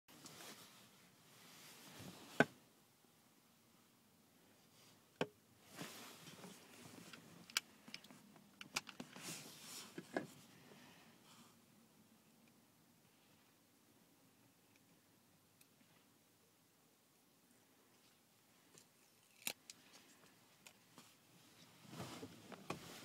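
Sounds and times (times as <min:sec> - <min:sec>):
soft rustles: 0:00.1 - 0:02.4, 0:05.6 - 0:08.3, 0:09.0 - 0:11.6, 0:19.8 - 0:23.0.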